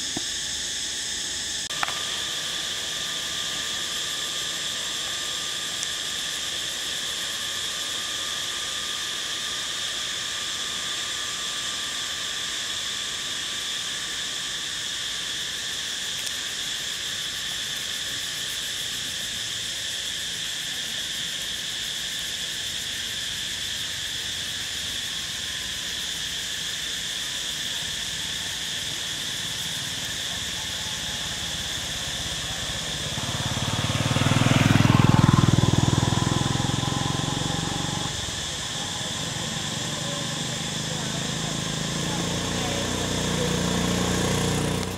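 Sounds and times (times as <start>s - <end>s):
insects droning: 0.0s - 44.9s
motor vehicle rumble: 30.4s - 44.9s.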